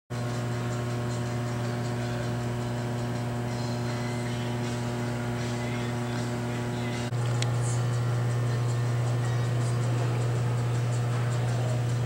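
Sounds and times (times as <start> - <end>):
low electrical mains hum: 0.2 - 12.0.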